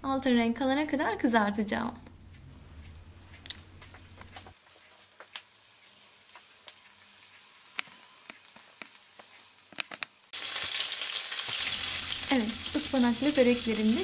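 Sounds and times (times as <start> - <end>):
pastries frying in hot oil: 4.5 - 14.0.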